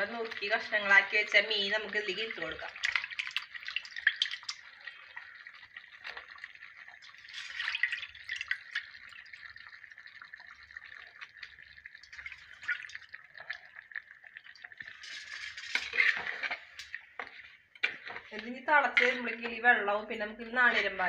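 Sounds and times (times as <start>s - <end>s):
gravy bubbling: 0.0s - 21.0s
fish plopping into gravy: 2.7s - 19.3s.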